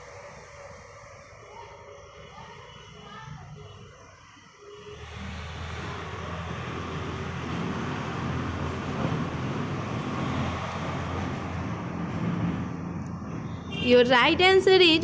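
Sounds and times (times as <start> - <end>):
vehicle low hum: 4.9 - 15.0.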